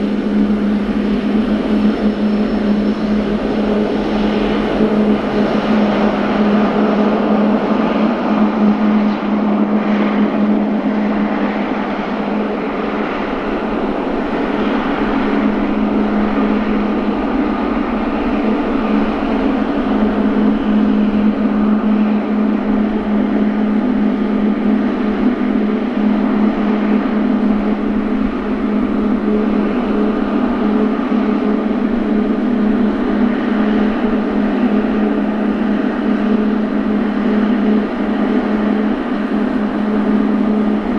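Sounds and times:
jet engines droning: 0:00.0 - 0:40.9.

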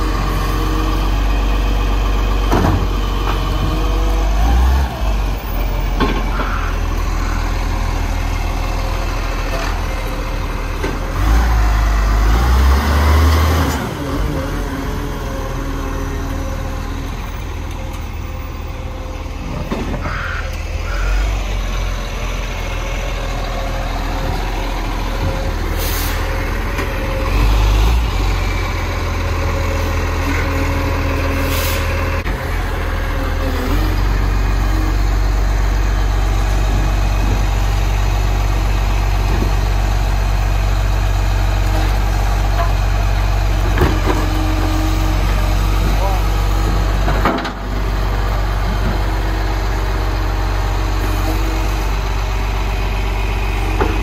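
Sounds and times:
garbage truck engine running: 0:00.0 - 0:54.0.

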